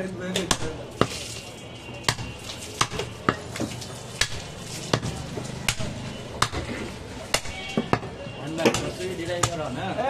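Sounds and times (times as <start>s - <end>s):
cleaver chopping on wooden block: 2.1s - 9.6s.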